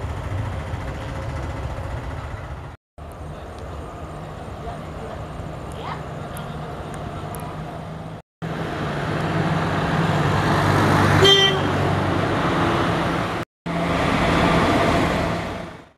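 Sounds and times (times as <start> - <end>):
short horn toot: 11.2 - 11.8.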